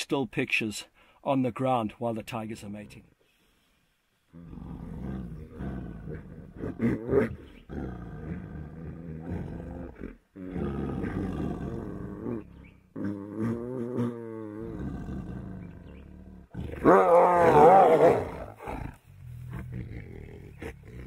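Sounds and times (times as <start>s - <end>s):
tigers growling: 4.3s - 21.0s.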